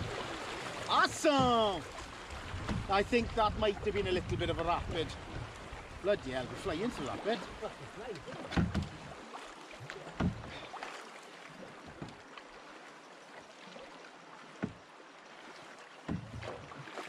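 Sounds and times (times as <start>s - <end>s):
water rushing along canoe hull: 0.0s - 17.0s
dull knocks: 2.6s - 2.9s, 8.1s - 9.0s, 10.2s - 10.6s, 14.6s - 14.8s, 16.1s - 16.6s.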